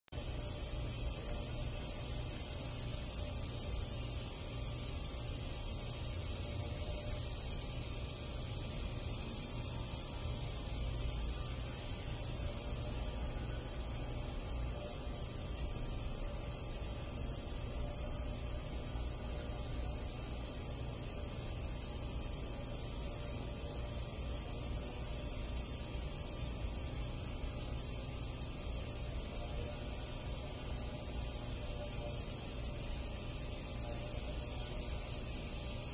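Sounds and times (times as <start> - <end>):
insects trilling: 0.1 - 35.9.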